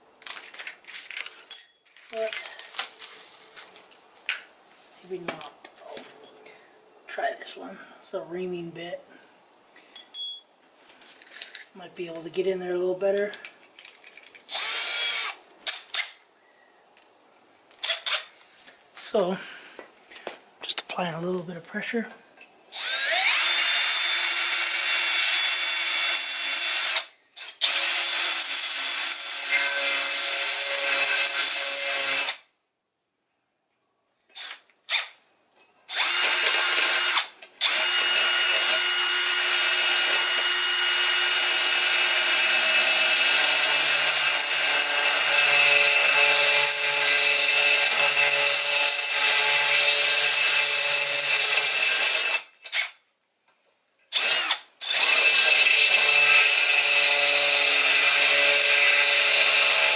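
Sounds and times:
cordless drill reaming metal: 14.1 - 16.2, 17.8 - 18.4, 22.7 - 32.5, 34.3 - 35.2, 35.9 - 53.0, 54.1 - 59.9.

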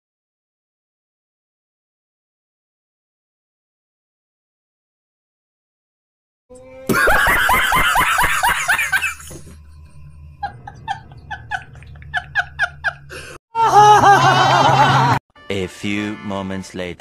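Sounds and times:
man laughing: 6.9 - 9.4, 10.4 - 15.2.

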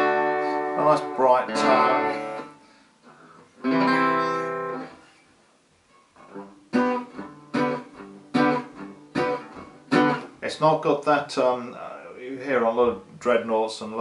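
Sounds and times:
acoustic guitar strummed chord: 0.0 - 5.0, 6.2 - 10.4
guitar notes picked: 0.0 - 5.1, 6.2 - 10.4.

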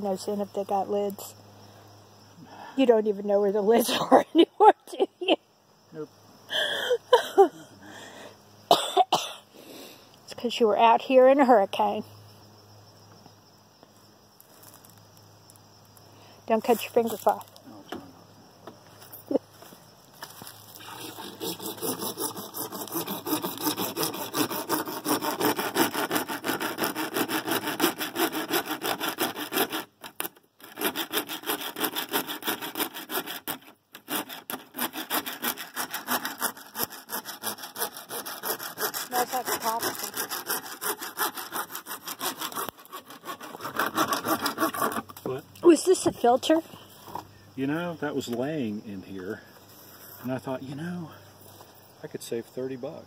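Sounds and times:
hand saw cutting plastic pipe: 20.8 - 45.2.

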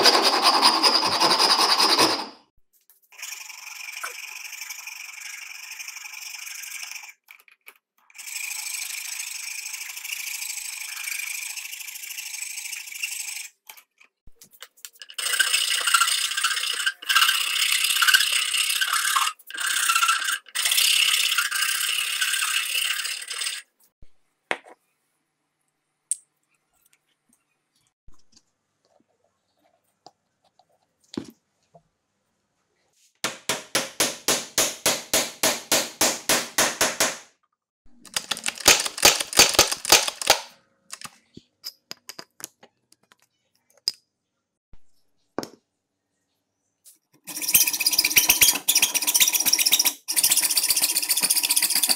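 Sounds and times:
file rasping on wood: 0.0 - 2.4.

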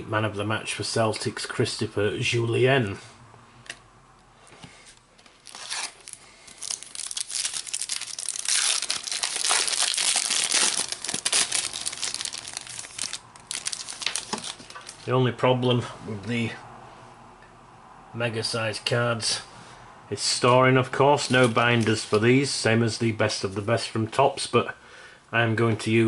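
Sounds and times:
foil wrapper tearing and crinkling: 5.4 - 15.0.

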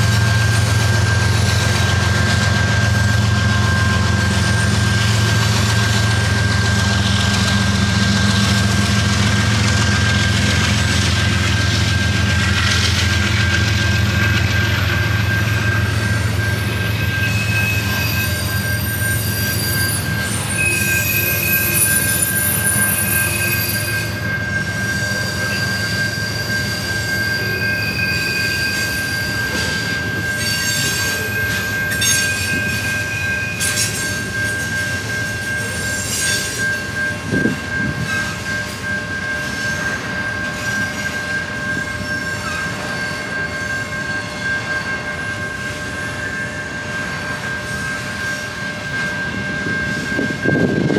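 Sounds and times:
freight train wheels rumbling on rails: 0.0 - 50.9
high wheel squeal: 0.0 - 50.9
short higher wheel squeals: 0.0 - 50.9.

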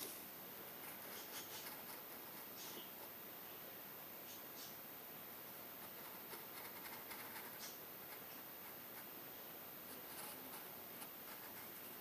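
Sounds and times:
pencil scratching on paper: 0.8 - 3.1, 5.8 - 9.2, 9.9 - 11.8.

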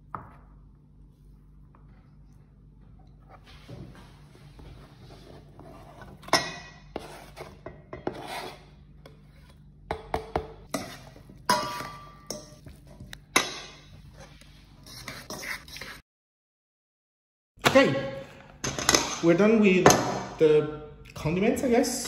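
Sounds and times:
sausage scraped off cutting board: 6.9 - 9.6.

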